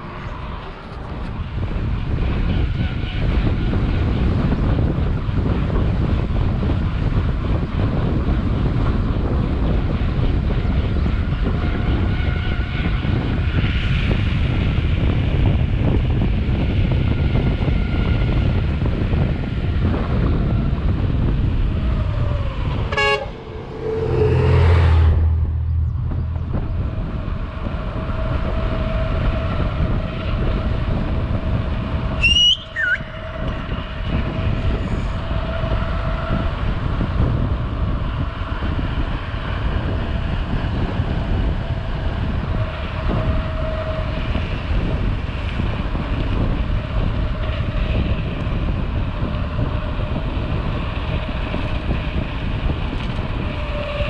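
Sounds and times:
wind rushing over microphone: 0.0 - 54.0
low rumble: 18.1 - 54.0
high squeal dropping in pitch: 21.8 - 26.6, 32.2 - 33.5
brief tooting tone: 32.2 - 33.0.

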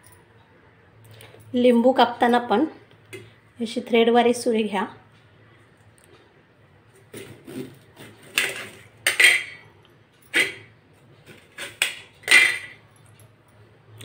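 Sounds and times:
knife clinking on steel plate: 8.4 - 9.6.

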